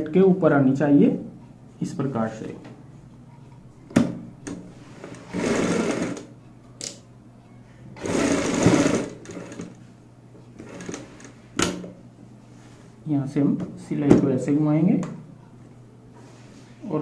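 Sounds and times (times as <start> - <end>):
sewing machine stitching: 5.0 - 6.3, 8.0 - 9.8, 10.6 - 11.3.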